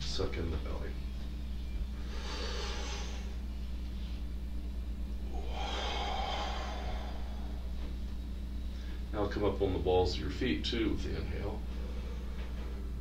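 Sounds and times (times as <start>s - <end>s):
steady low hum: 0.0s - 13.0s
man breathing deeply: 2.0s - 4.3s, 5.2s - 9.1s, 11.7s - 12.7s.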